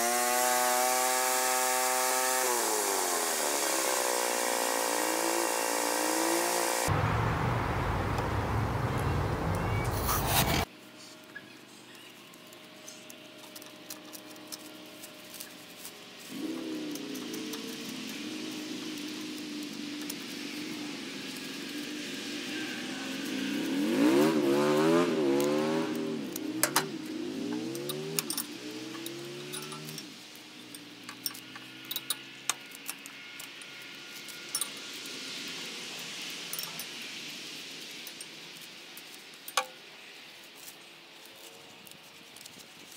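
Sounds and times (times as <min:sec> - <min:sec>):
engine hum: 0:00.0 - 0:10.7, 0:11.7 - 0:42.9
loud steady noise: 0:00.0 - 0:10.7
clicks and knocks on metal tines: 0:12.4 - 0:20.6, 0:24.6 - 0:35.2, 0:36.5 - 0:37.0, 0:37.9 - 0:42.9
metal clinks of hand tool: 0:29.5 - 0:30.1.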